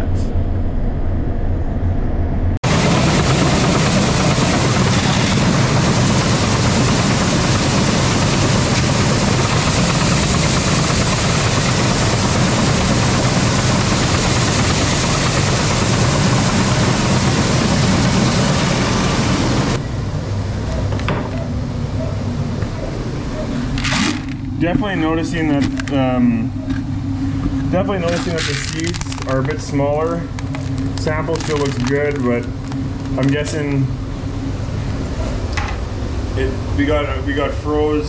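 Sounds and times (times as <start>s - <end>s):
low machine hum: 0.0s - 38.0s
corn kernels pouring: 30.7s - 32.2s.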